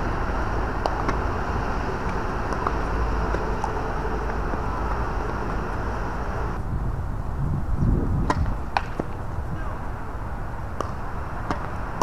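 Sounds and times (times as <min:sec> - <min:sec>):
low outdoor rumble: 0:00.0 - 0:12.0
tennis balls struck by rackets: 0:00.3 - 0:05.8, 0:08.2 - 0:09.2, 0:10.7 - 0:12.0.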